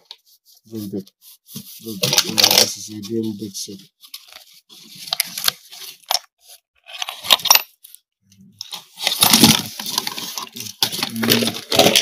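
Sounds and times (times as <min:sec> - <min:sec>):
tools clattering in cardboard box: 0:09.0 - 0:12.0.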